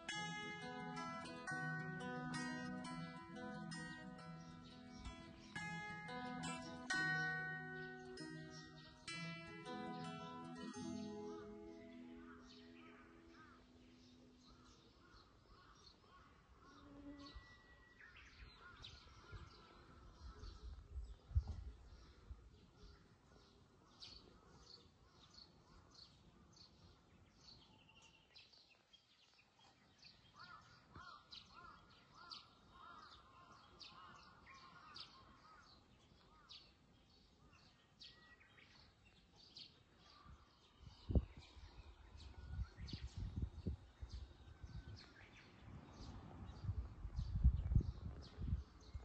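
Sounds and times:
birds chirping: 0:00.0 - 0:20.8
bird warbling song: 0:00.0 - 0:23.1.

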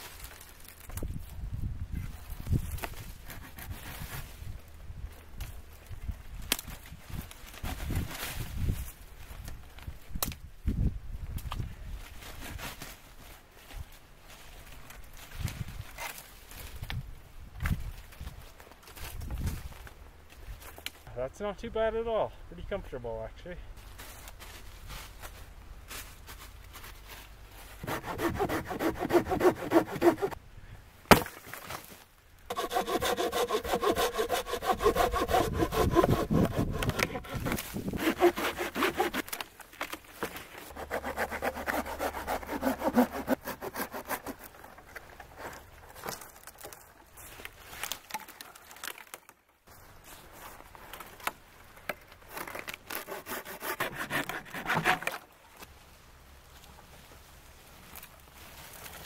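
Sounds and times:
hand saw cutting wood: 0:03.2 - 0:04.2, 0:27.8 - 0:30.4, 0:32.5 - 0:39.4, 0:40.6 - 0:45.6, 0:52.3 - 0:55.3.

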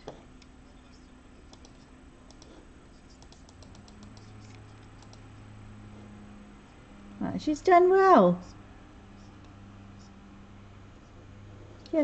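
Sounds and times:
low steady hum: 0:00.0 - 0:12.0
computer mouse clicks: 0:01.5 - 0:05.3.

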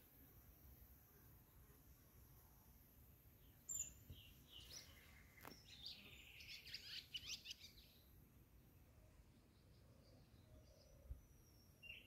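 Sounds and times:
small bird chirping: 0:03.4 - 0:08.1, 0:09.6 - 0:12.0.

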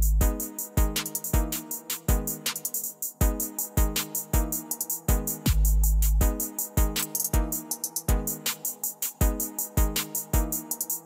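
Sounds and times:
deep kick drum: 0:00.0 - 0:01.5, 0:05.1 - 0:07.5.

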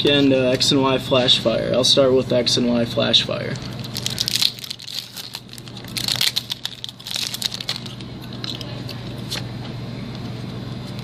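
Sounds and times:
steady low hum: 0:00.0 - 0:11.0
cards rustling: 0:03.5 - 0:09.5
foil wrapper crinkling and tearing: 0:03.6 - 0:09.4.

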